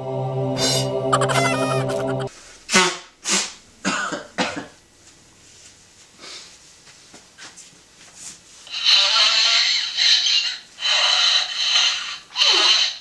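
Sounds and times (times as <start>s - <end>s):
recorded coughing: 2.7s - 4.8s.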